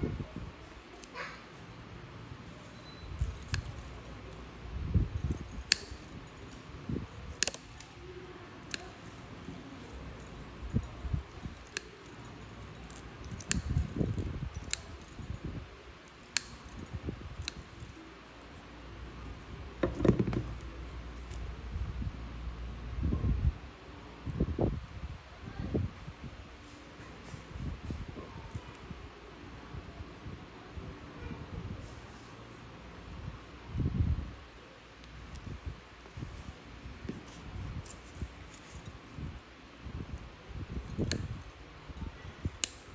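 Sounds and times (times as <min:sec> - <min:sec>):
metal instrument clicking on toenail: 0:02.8 - 0:15.4, 0:16.1 - 0:18.1, 0:42.4 - 0:42.9.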